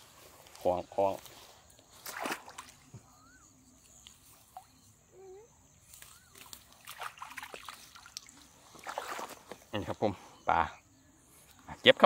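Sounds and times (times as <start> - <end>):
water sloshing and splashing: 1.9 - 3.2, 5.9 - 9.7
short chirping calls: 2.8 - 7.3.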